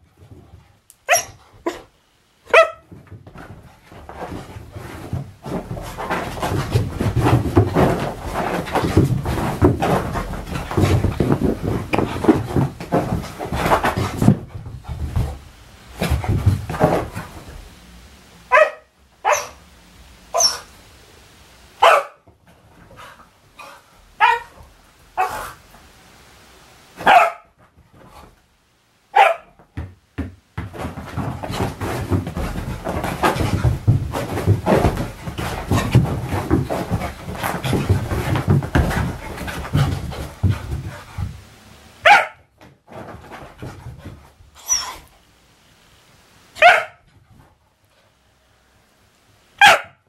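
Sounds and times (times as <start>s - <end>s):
dog barking: 1.1s - 1.8s, 2.5s - 2.9s, 18.5s - 19.6s, 21.8s - 22.2s, 24.2s - 24.5s, 27.0s - 27.5s, 29.2s - 29.6s, 42.0s - 42.5s, 46.6s - 47.0s, 49.6s - 50.0s
dog thuds and scrabbling: 2.5s - 17.7s, 29.5s - 41.5s, 42.1s - 45.1s.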